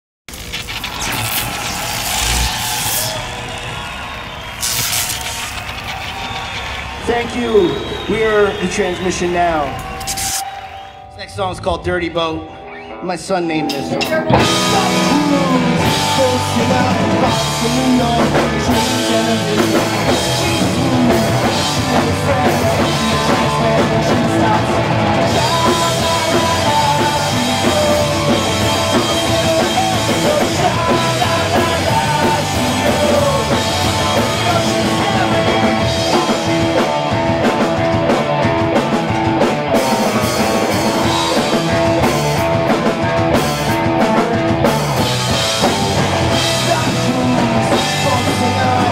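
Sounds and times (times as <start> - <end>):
electric bass: 0.3 - 8.2, 13.8 - 48.9
electric guitars: 0.3 - 11.1, 12.4 - 48.9
drum kit: 13.7 - 48.9.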